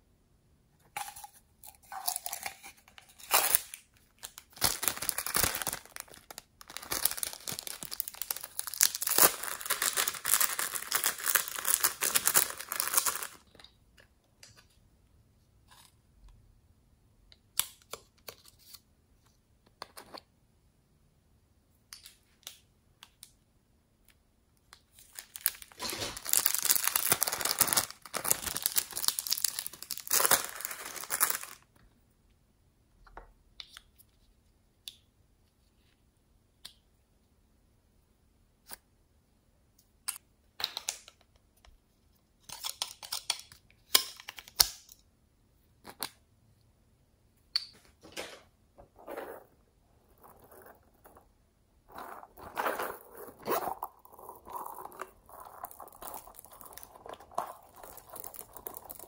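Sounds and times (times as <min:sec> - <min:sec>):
plastic packet crinkling: 0:01.8 - 0:13.4, 0:25.0 - 0:31.7, 0:51.9 - 0:59.0.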